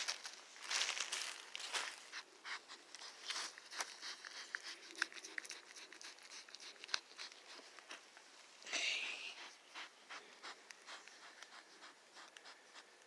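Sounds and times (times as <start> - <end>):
rustling dry leaf litter: 0.0 - 8.0
fawn licking a hand: 2.1 - 8.1, 9.2 - 13.0.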